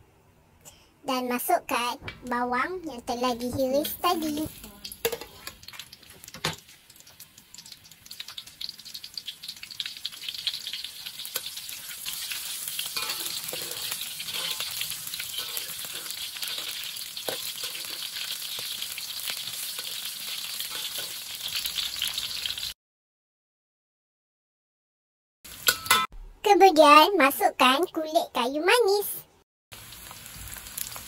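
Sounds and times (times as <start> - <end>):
onions sizzling in hot oil: 3.8 - 22.8, 25.5 - 26.0, 29.7 - 31.0
metal spatula scraping pan: 11.3 - 18.7, 20.6 - 21.2.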